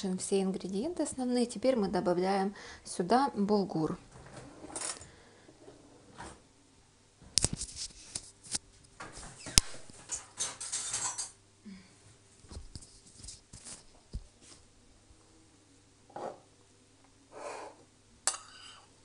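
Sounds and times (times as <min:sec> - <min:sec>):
rustling: 0:12.4 - 0:14.7.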